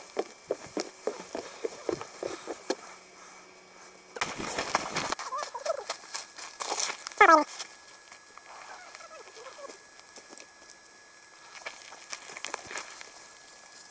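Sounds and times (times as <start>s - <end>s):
walking footsteps: 0.0s - 10.8s
rustling and handling noise: 0.0s - 13.9s.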